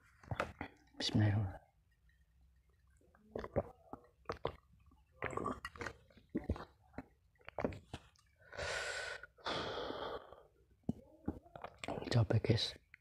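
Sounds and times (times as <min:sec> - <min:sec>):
man swallowing a drink: 0:03.3 - 0:07.8.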